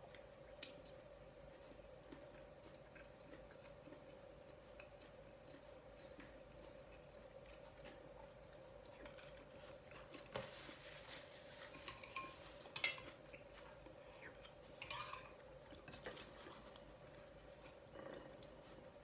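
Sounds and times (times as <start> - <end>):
faint steady hum: 0.0 - 19.0
metal spoon clinking on bowl: 11.8 - 13.1, 14.8 - 15.4.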